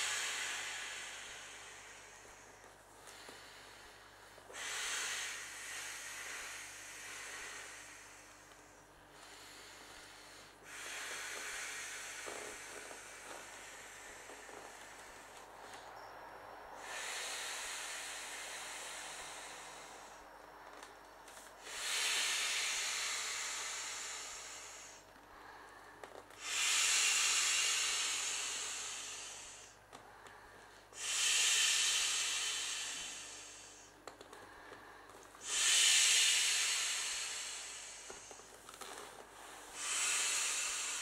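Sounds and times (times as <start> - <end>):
breaths blown into inflatable valve: 35.4 - 38.4.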